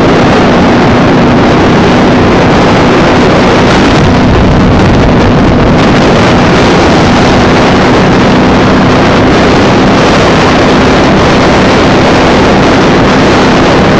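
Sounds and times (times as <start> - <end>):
motorcycle engine running: 0.0 - 13.9
wind rush on microphone: 0.0 - 13.9.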